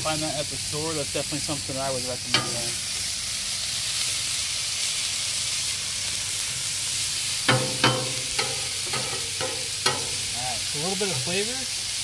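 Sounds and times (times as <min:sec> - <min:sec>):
vegetables sizzling on griddle: 0:00.0 - 0:12.0
metal spatula scraping griddle: 0:07.5 - 0:11.5.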